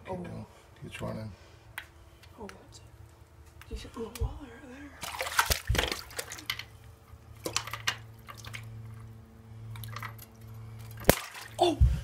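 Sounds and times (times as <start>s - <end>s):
steady low hum: 0.0s - 12.0s
fish splashing in water: 5.0s - 6.6s, 7.4s - 8.9s, 10.8s - 11.6s.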